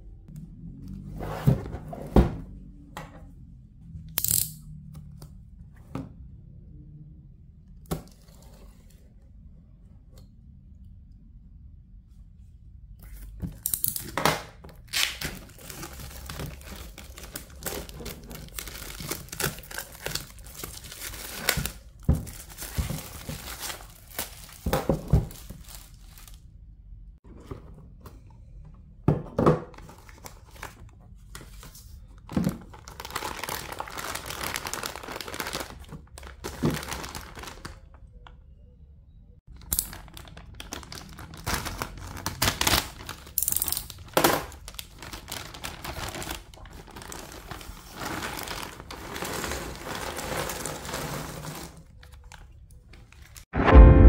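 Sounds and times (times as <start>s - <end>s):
plastic shrink-wrap crinkling and tearing: 14.8s - 26.4s, 32.5s - 38.0s, 39.5s - 53.5s
plastic bag crinkling: 14.9s - 26.4s, 32.6s - 37.9s, 39.5s - 53.4s.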